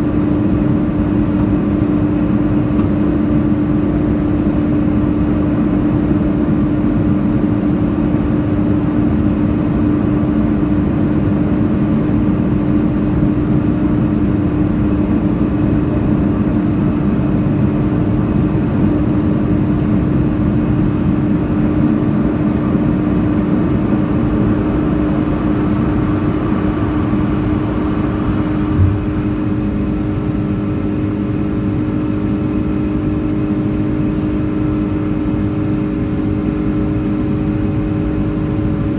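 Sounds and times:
aircraft cabin engine rush: 0.0 - 38.9
constant hum: 0.0 - 38.9
low thump: 28.7 - 29.5.

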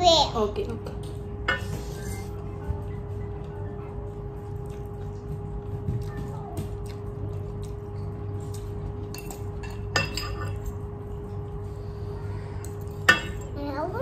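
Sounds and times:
steady low hum: 0.0 - 14.0
cutlery clinking on steel bowl: 9.1 - 10.8.

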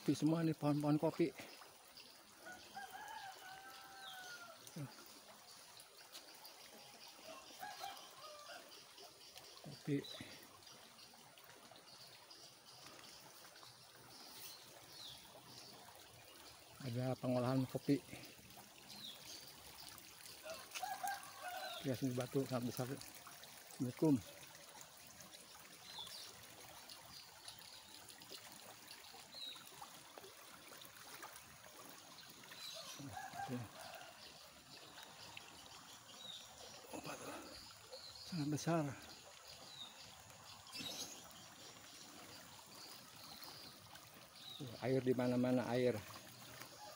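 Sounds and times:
faint trickle of running water: 0.0 - 46.9.

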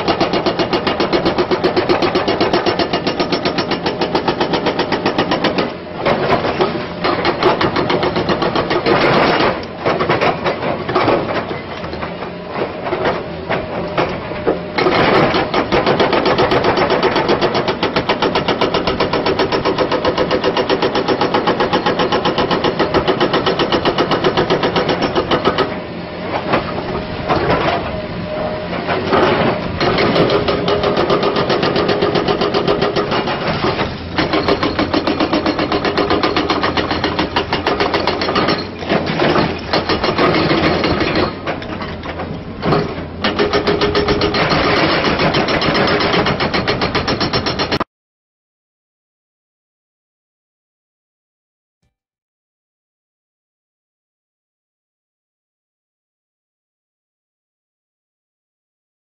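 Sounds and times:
hydraulic breaker hammering rock: 0.0 - 28.0, 28.9 - 47.9
excavator engine running: 0.0 - 47.8.

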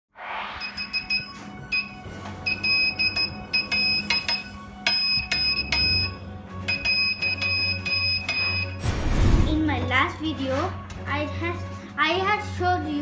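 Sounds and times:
morse code buzzer beeps: 0.6 - 8.9.

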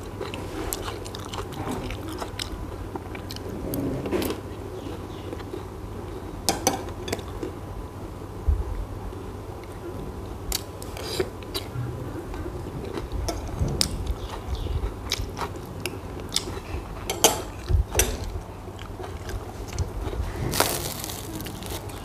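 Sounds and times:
person chewing: 0.0 - 3.5, 12.8 - 17.7, 18.7 - 22.0.

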